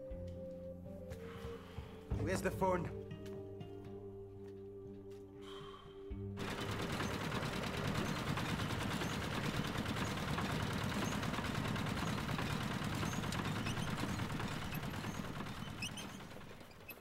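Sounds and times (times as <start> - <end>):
water pump engine running: 6.4 - 17.0.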